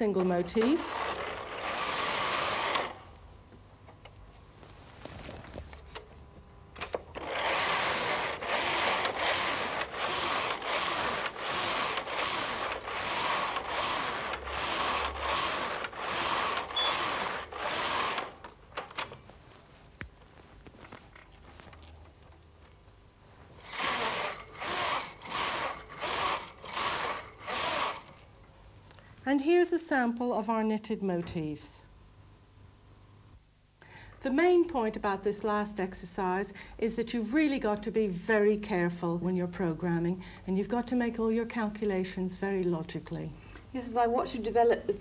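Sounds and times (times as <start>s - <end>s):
knitting machine carriage rattling: 0.0s - 3.1s, 6.8s - 19.2s, 23.6s - 28.3s.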